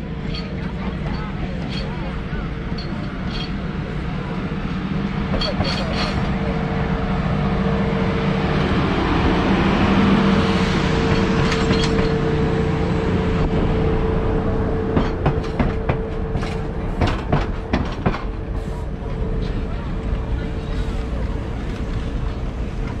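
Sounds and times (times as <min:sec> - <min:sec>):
diesel train engine hum: 0:00.0 - 0:23.0
wheels clicking over rail joints: 0:05.3 - 0:06.4, 0:11.0 - 0:12.2, 0:14.9 - 0:23.0.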